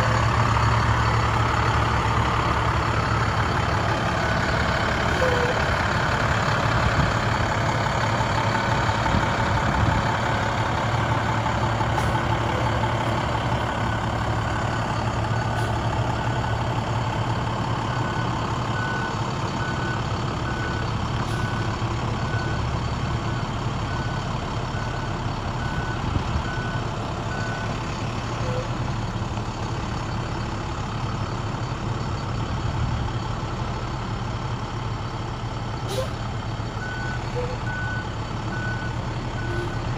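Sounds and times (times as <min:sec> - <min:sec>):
diesel truck engine running: 0:00.0 - 0:39.9
reversing alarm beeps: 0:36.8 - 0:39.8.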